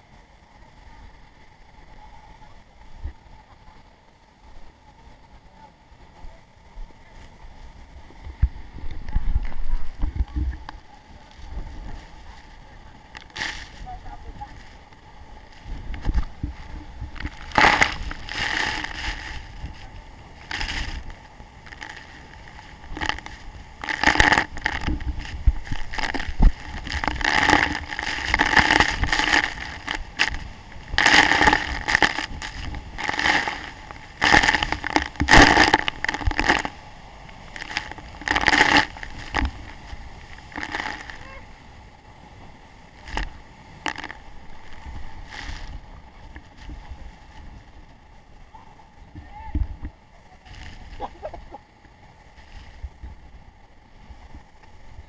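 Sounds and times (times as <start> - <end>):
low rumble of falling water: 0.0 - 55.0
waterfall spray pounding: 13.2 - 41.5, 43.0 - 45.9.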